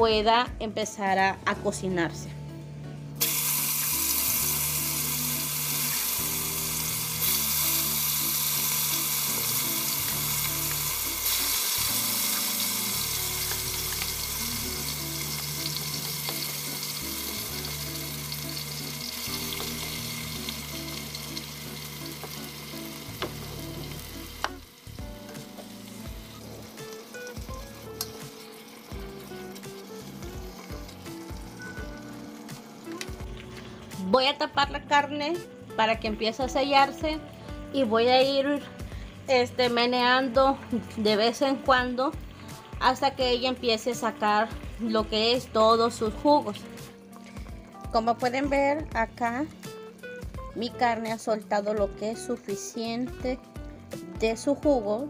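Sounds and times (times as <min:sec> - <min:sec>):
meat sizzling in hot oil: 0:03.2 - 0:34.5, 0:38.3 - 0:50.6.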